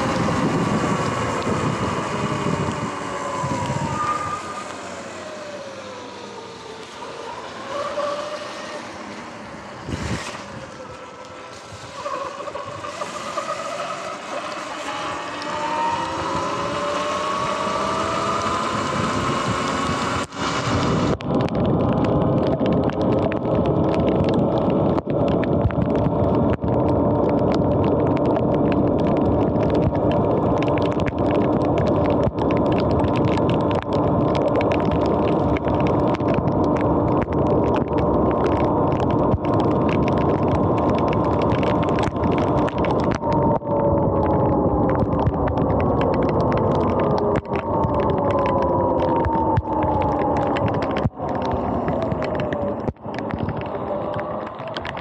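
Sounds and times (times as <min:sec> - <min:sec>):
tyres hissing on wet road: 0:00.0 - 0:21.2
wind: 0:00.0 - 0:55.0.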